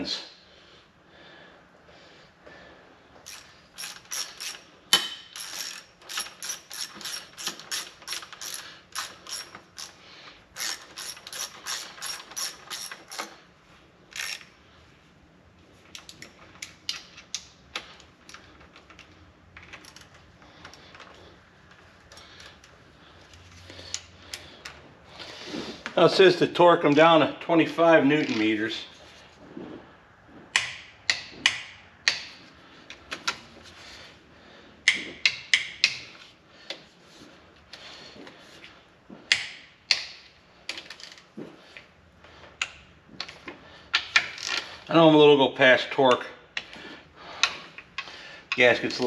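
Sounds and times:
ratchet wrench clicking: 3.2s - 13.4s, 14.1s - 14.5s.

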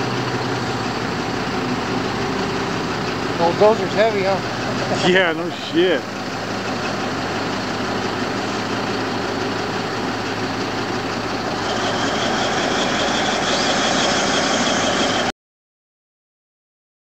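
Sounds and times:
bulldozer diesel engine running: 0.0s - 15.3s
faint high whine: 11.5s - 15.3s.

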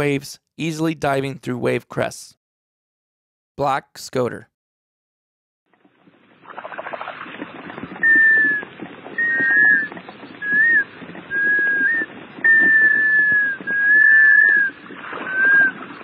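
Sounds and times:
sea ducks whistling: 8.0s - 16.0s.

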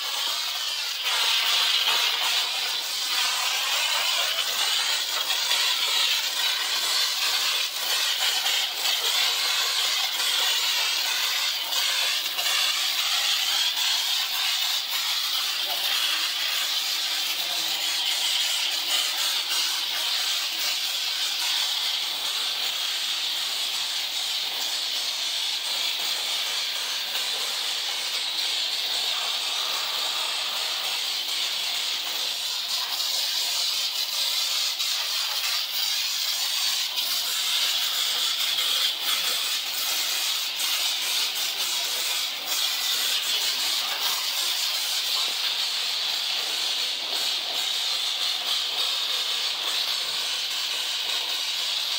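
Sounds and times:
hose water spraying: 0.0s - 51.9s.

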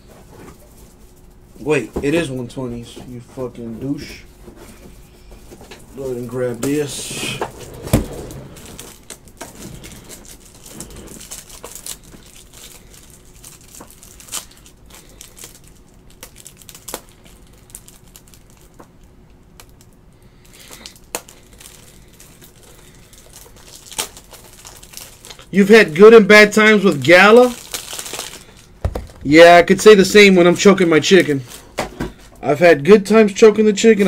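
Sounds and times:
wrappers crinkling and tearing: 5.7s - 32.4s.

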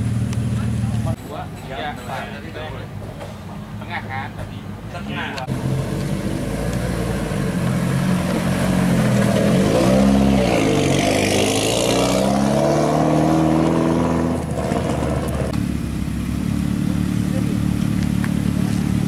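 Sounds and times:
rally car engine revving: 5.4s - 15.8s.

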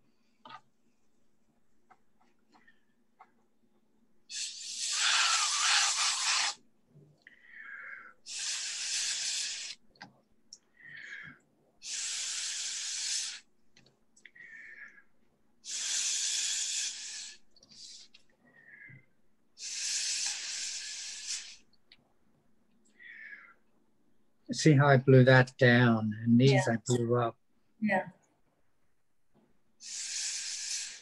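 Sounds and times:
hissing puffs of blown air: 4.3s - 6.6s, 7.4s - 9.8s, 11.8s - 13.5s, 15.6s - 18.1s, 19.6s - 21.7s, 29.8s - 31.0s.

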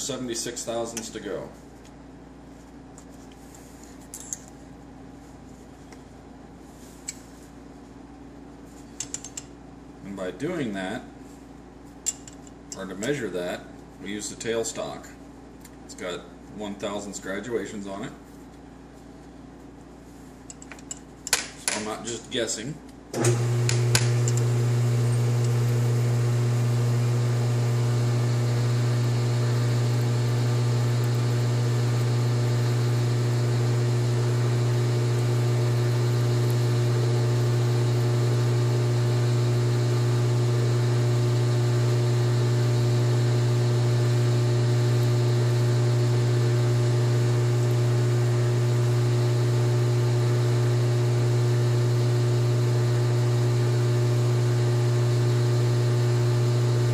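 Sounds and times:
metal lathe motor humming: 23.2s - 56.9s.

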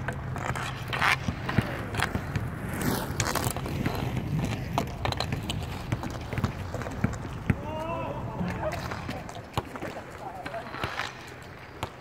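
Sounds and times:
hockey stick clacks: 0.0s - 2.5s, 3.1s - 7.5s, 8.4s - 12.0s
skate wheels rolling and scraping: 0.0s - 12.0s.

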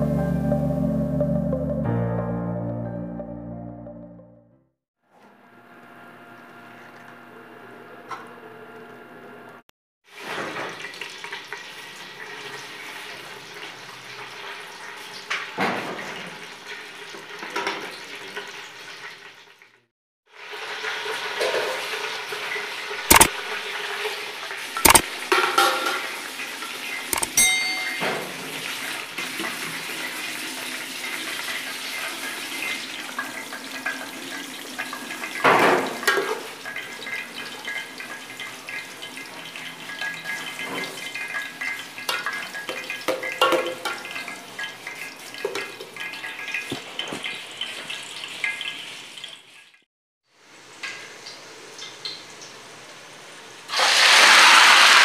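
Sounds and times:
oil and onions sizzling: 10.0s - 55.0s
metal plate clinks: 27.2s - 28.3s.

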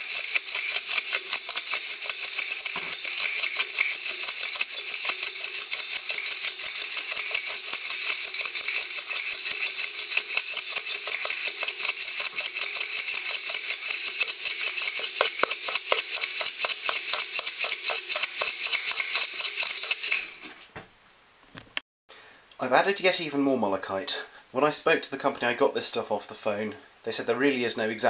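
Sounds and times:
grit rattling in metal strainer: 0.0s - 20.6s.

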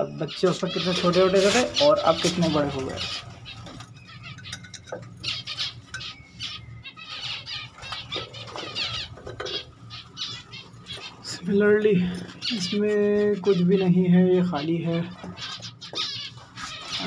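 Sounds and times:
finches chirping: 0.0s - 17.0s
low steady hum: 0.0s - 17.0s.

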